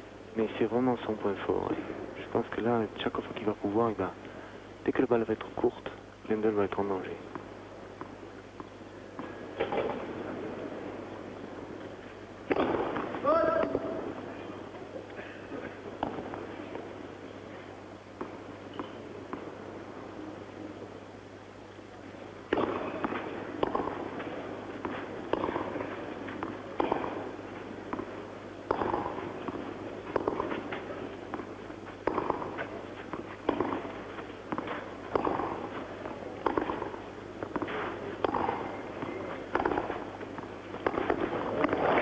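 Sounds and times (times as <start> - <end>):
tennis ball hit by rackets: 9.2 - 10.1, 12.5 - 13.8, 22.5 - 24.0, 24.8 - 27.2, 28.7 - 42.0.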